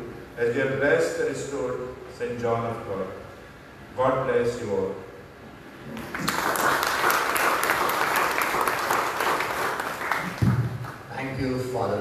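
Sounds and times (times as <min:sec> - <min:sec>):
audience applauding: 0:06.0 - 0:11.1.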